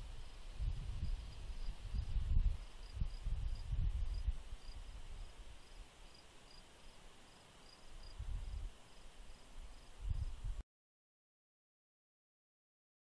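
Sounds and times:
wind gusts on microphone: 0.0s - 5.6s, 8.0s - 8.8s, 9.6s - 10.6s
soft hiss: 0.0s - 10.6s
crickets chirping: 0.2s - 10.4s.

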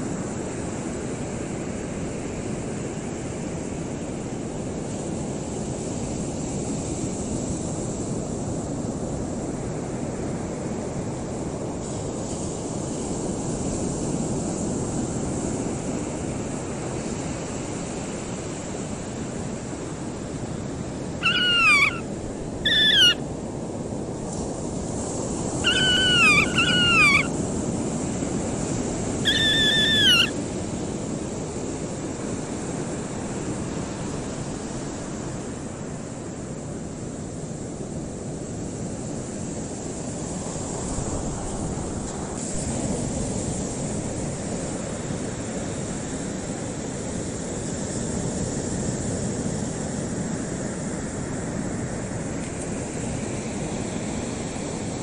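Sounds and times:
steady wind: 0.0s - 55.0s
grebe whistled calls: 21.2s - 23.2s, 25.6s - 27.3s, 29.3s - 30.3s.

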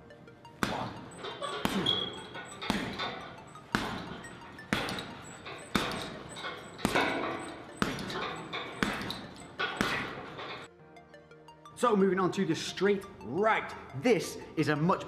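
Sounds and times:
gloves thudding on punching bag: 0.6s - 10.4s.

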